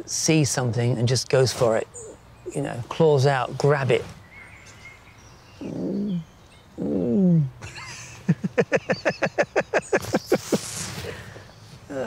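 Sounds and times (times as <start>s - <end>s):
man laughing: 7.6s - 11.3s.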